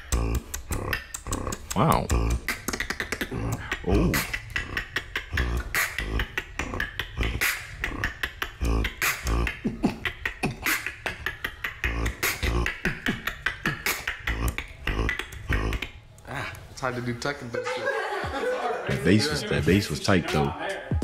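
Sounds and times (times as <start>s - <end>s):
beatboxing: 0.0s - 16.9s, 17.8s - 21.0s.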